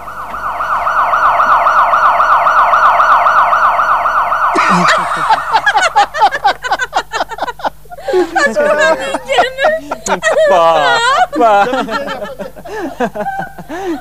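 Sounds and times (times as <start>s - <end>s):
electronic siren wailing: 0.0s - 6.4s
bursts of laughter: 4.5s - 14.0s.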